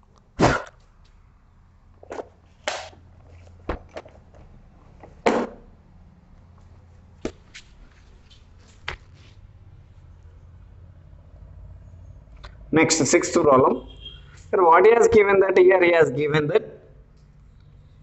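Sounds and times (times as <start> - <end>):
handling knocks and scuffs: 2.0 - 5.7, 6.4 - 9.6
footsteps: 6.4 - 9.6.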